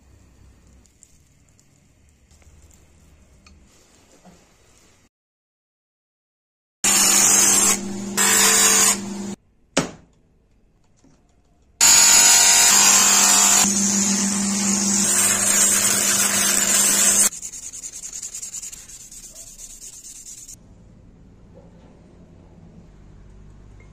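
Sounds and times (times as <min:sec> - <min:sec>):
electric motor humming: 0:06.9 - 0:09.4, 0:11.8 - 0:17.3
sanding drum grinding horn: 0:06.9 - 0:09.4, 0:11.8 - 0:20.6.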